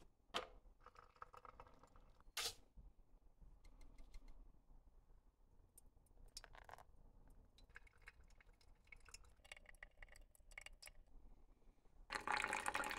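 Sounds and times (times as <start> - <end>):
coffee dripping into glass: 6.4 - 11.0, 12.1 - 12.9.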